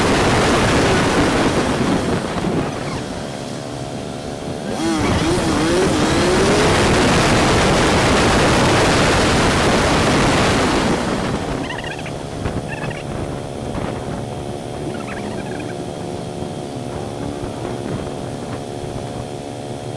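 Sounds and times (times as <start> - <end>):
motorcycle engine running: 0.0 - 19.9
wind and road noise: 0.0 - 19.9
high warbling chirps: 11.5 - 13.2, 14.8 - 16.0.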